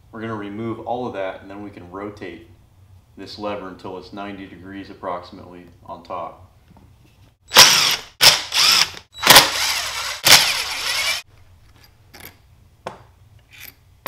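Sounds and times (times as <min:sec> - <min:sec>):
impact driver running: 0:07.5 - 0:11.2.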